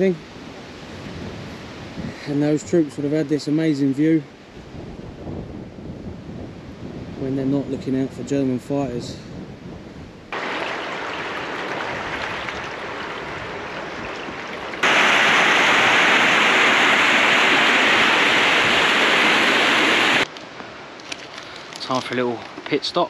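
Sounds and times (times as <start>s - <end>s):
water rushing at a weir: 10.4s - 20.3s.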